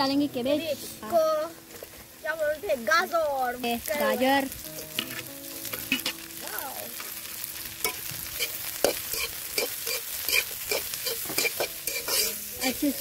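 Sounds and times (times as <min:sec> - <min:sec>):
vegetables sizzling in hot oil: 0:00.0 - 0:13.0
spatula scraping a pan: 0:04.7 - 0:06.2, 0:07.8 - 0:13.0.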